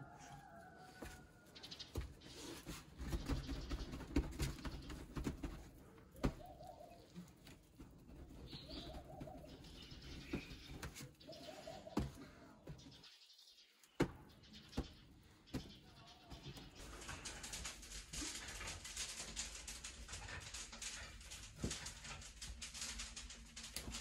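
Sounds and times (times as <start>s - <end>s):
pigeons cooing: 3.1s - 12.8s.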